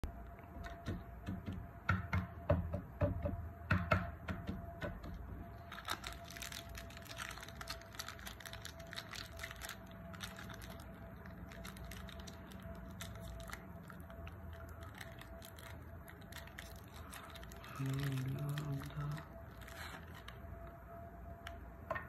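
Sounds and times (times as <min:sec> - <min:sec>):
plastic wrapper crinkling: 0:05.5 - 0:20.8.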